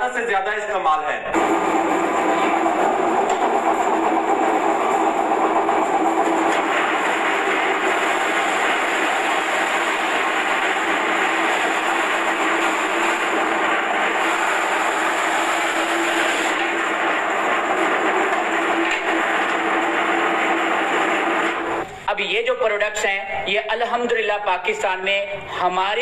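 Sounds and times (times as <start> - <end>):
vegetable cutting machine motor hum: 1.4 - 21.9.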